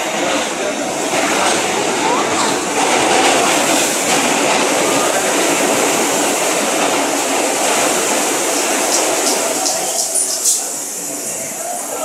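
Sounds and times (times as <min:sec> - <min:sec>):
subway train wheels on rail: 0:00.0 - 0:12.0.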